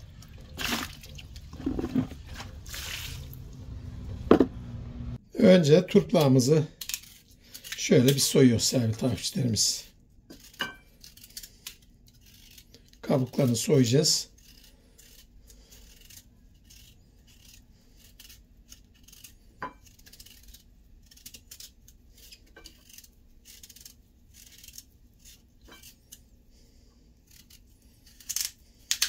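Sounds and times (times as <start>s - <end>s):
knife scraping radish skin: 6.1s - 26.4s, 27.2s - 29.0s.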